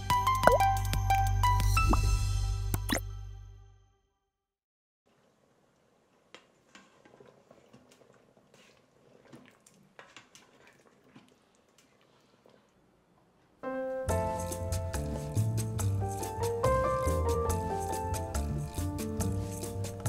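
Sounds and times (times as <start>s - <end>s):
background piano music: 0.0s - 3.5s, 13.6s - 20.0s.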